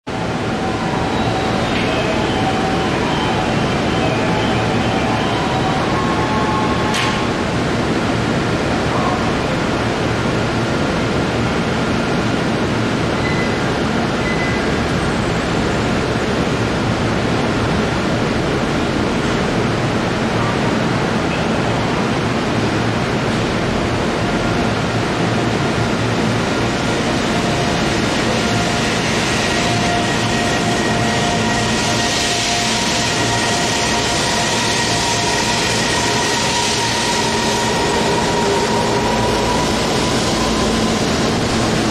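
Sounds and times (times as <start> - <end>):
station equipment noise: 0.1 - 7.6, 25.7 - 41.9
rushing hiss of passing train cars: 25.4 - 41.9.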